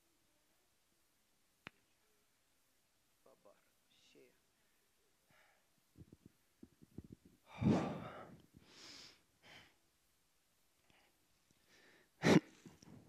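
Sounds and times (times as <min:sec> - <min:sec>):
man breathing: 0:04.5 - 0:05.8, 0:07.4 - 0:09.8, 0:10.8 - 0:12.9.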